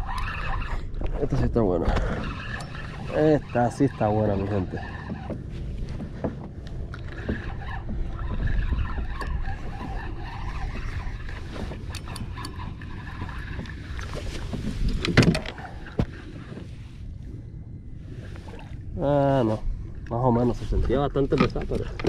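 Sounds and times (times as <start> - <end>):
water sloshing: 0.0 - 22.0
wind rumble: 0.0 - 22.0
fishing reel and rod clicks: 11.2 - 13.7.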